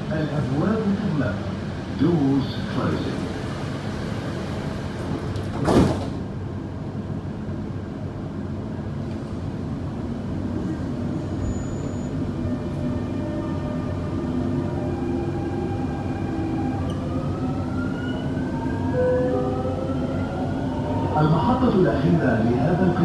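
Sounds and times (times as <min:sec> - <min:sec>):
train running noise: 0:00.0 - 0:23.0
train doors shutting thud: 0:04.9 - 0:06.3.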